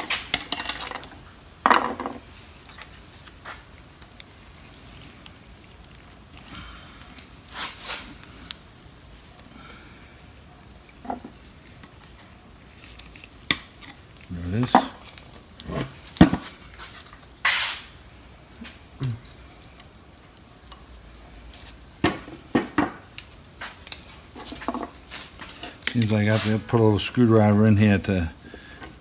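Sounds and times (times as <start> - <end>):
metal scrape: 16.8 - 18.0.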